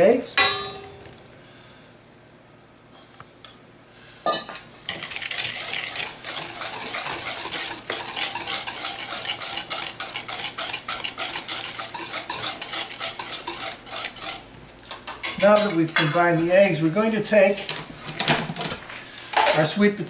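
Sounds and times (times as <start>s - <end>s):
whisk scraping metal bowl: 4.9s - 15.8s.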